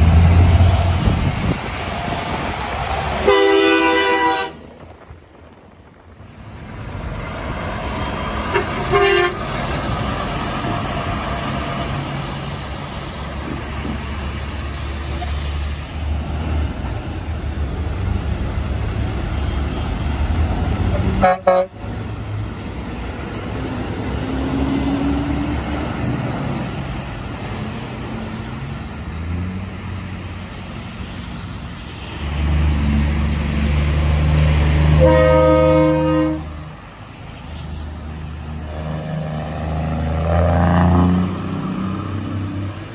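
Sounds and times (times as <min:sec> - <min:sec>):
diesel truck engines running: 0:00.0 - 0:42.9
fouled air horn blast: 0:03.2 - 0:04.6, 0:08.5 - 0:09.5, 0:21.0 - 0:21.8, 0:34.9 - 0:36.7
truck air horn blast: 0:03.2 - 0:04.6, 0:08.4 - 0:09.6, 0:20.9 - 0:21.9, 0:34.9 - 0:36.7.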